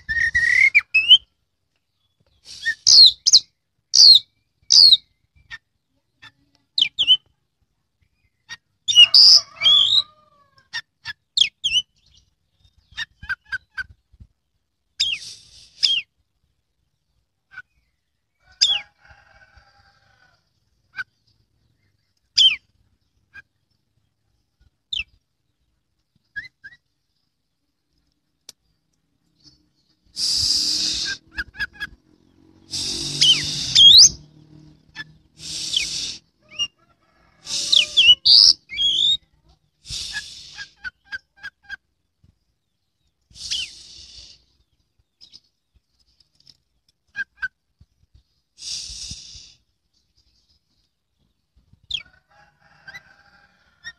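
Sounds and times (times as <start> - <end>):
bird whistling and chirping: 0.0 - 1.3, 2.4 - 5.1, 26.3 - 26.9, 29.4 - 32.0, 32.8 - 34.2, 37.5 - 39.2, 43.4 - 44.3
harsh noisy bursts: 32.5 - 34.3.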